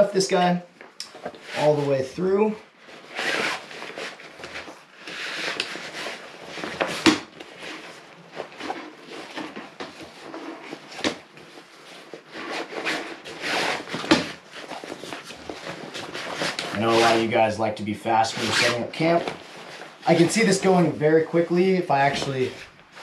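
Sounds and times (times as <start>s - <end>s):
fabric rustling and swishing: 1.2s - 17.5s.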